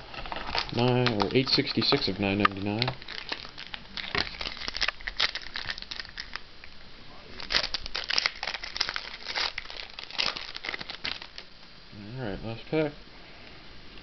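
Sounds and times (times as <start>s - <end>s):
foil wrapper crinkling and tearing: 0.0s - 6.4s, 7.3s - 11.5s.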